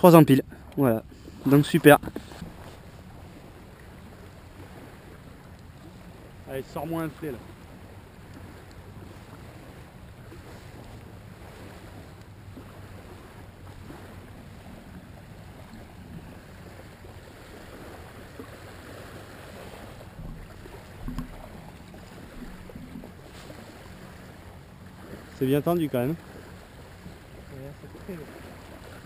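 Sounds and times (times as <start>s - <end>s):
small waves lapping: 0.0s - 29.0s
low thump: 21.0s - 21.4s.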